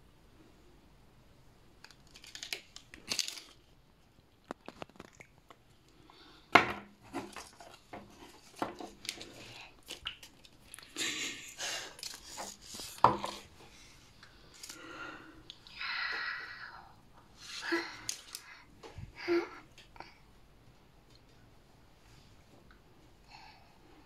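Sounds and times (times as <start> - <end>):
plastic crinkling: 1.8 - 5.6, 11.8 - 13.5.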